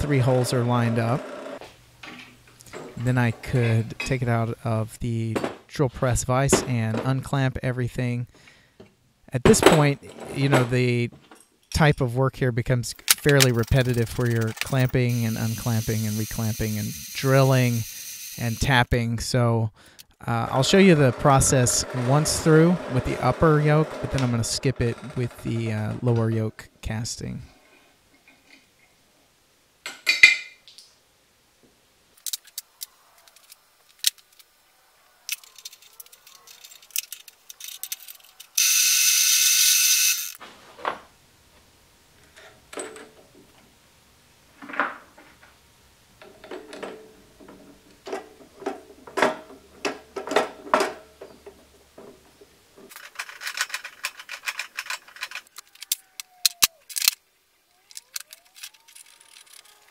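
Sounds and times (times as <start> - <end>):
metal parts clicking and clinking: 13.0 - 18.6, 32.2 - 34.5, 35.3 - 40.4, 52.8 - 57.2, 57.9 - 59.9.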